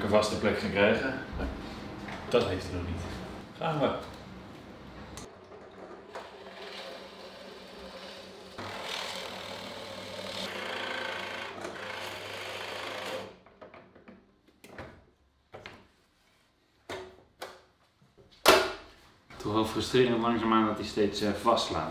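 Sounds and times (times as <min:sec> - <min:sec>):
drill press boring wood: 0:06.1 - 0:13.4.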